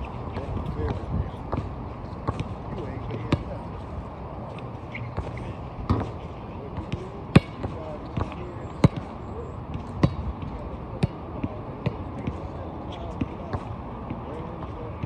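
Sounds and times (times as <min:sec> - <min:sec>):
basketball bouncing: 0:00.4 - 0:03.5, 0:05.1 - 0:06.2, 0:06.8 - 0:09.1, 0:09.7 - 0:12.4.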